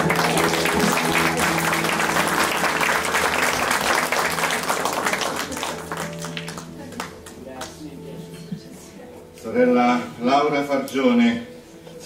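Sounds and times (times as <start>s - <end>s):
congregation applauding: 0.0s - 7.8s.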